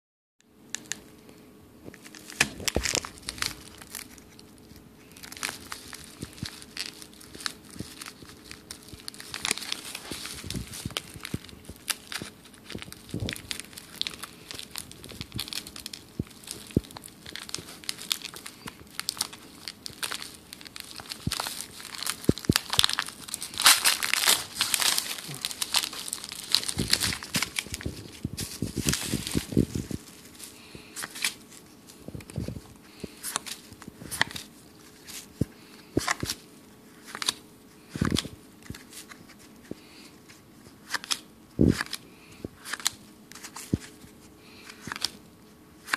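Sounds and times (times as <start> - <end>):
plastic wrapper crinkling and tearing: 1.9 - 39.6, 40.3 - 42.0, 42.6 - 45.2
cards clicking as flipped: 40.8 - 42.0, 42.6 - 43.9, 44.6 - 45.2.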